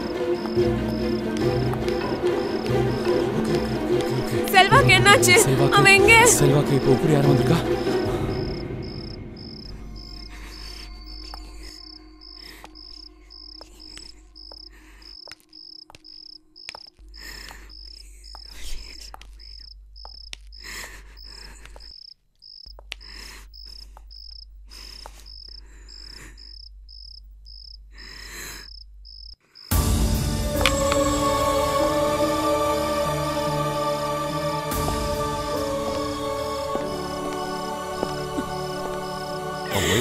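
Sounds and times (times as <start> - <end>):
cricket chirping: 0.0 - 4.4, 6.3 - 40.0
loud music: 0.2 - 6.7, 29.7 - 40.0.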